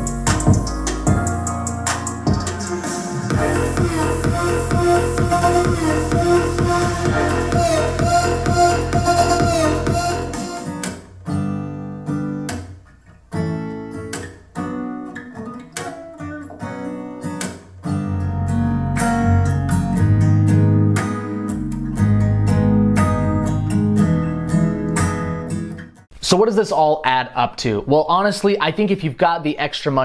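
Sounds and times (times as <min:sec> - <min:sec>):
deep bass line: 0:00.0 - 0:02.6, 0:03.2 - 0:10.4, 0:21.6 - 0:24.9
electronic music: 0:00.0 - 0:11.0
strummed acoustic guitar: 0:07.0 - 0:26.0.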